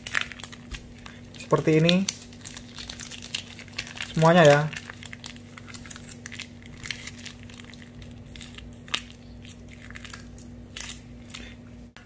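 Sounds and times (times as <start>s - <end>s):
plastic sachet crinkling: 0.0s - 11.6s.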